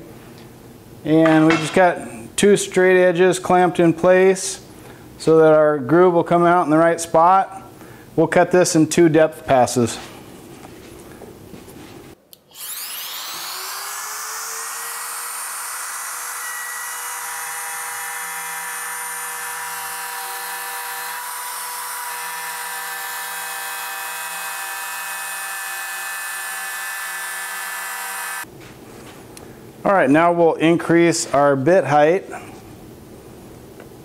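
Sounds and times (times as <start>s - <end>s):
electric router whining: 12.5s - 28.5s
router bit cutting wood: 12.5s - 28.5s.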